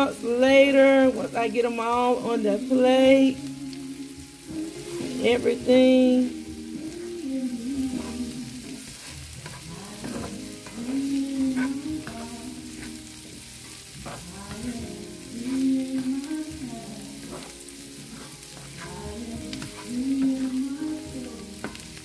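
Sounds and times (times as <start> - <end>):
vegetables sizzling in oil: 0.0 - 22.0
spatula scraping pan: 7.0 - 22.0.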